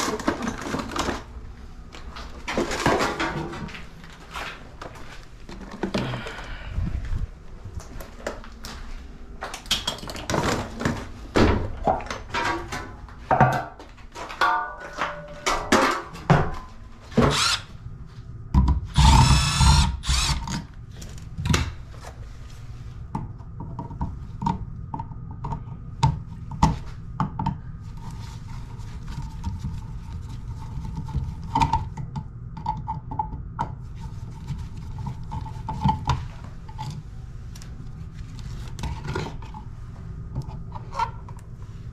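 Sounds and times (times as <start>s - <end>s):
power drill running: 17.2s - 17.7s, 18.9s - 20.5s.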